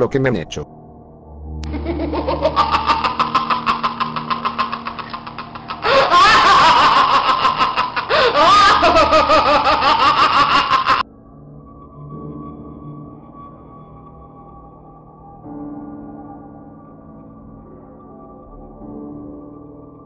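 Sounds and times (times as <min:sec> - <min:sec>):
evil laugh cackling: 0:01.6 - 0:11.0
higher laugh: 0:01.6 - 0:11.0.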